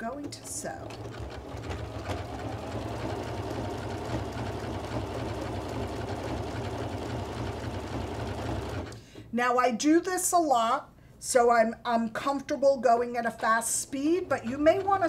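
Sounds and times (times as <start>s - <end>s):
sewing machine running fast: 0.0s - 9.0s, 14.0s - 15.0s.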